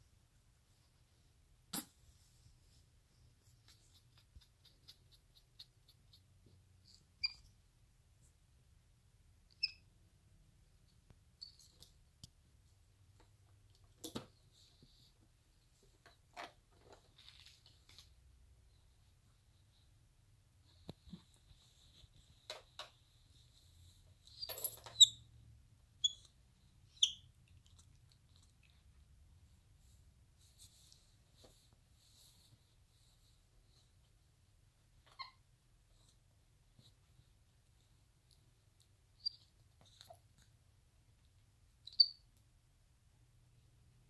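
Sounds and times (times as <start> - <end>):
monkey squeaking: 26.0 - 26.3.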